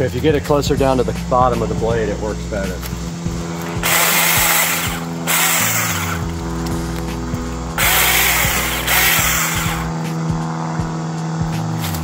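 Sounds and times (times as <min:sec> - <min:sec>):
chain cutting palm fronds: 0:02.8 - 0:10.0, 0:11.7 - 0:12.0
mini chainsaw motor whine: 0:02.9 - 0:12.0.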